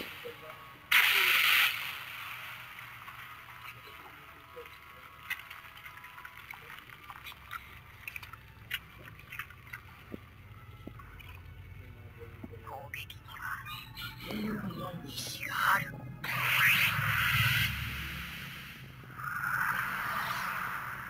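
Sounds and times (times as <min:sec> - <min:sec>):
hiss with faint crackles: 0:00.0 - 0:08.9.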